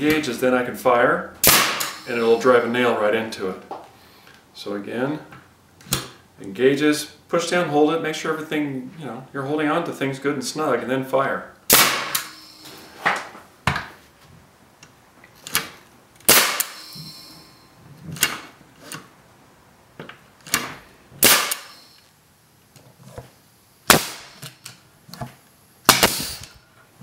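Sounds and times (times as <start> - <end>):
nail guns firing into wood: 1.4 - 2.1, 11.7 - 12.3, 16.3 - 16.8, 21.2 - 21.8, 23.9 - 24.4, 25.9 - 26.4
exhaust air hiss: 1.4 - 2.7, 16.3 - 17.8, 25.9 - 26.8.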